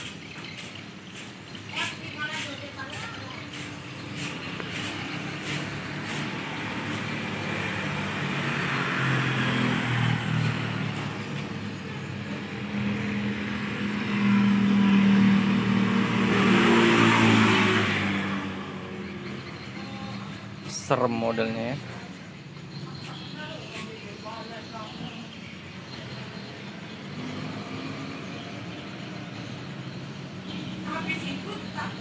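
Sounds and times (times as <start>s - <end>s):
vehicle engine running: 0.0s - 29.0s.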